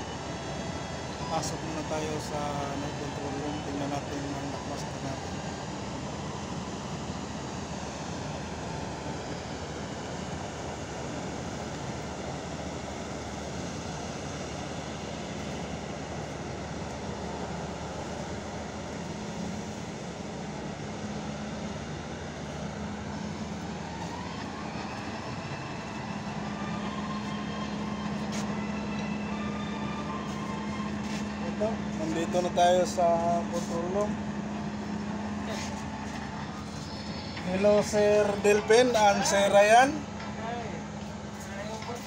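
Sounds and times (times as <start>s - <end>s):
heavy machinery droning: 0.0s - 42.0s.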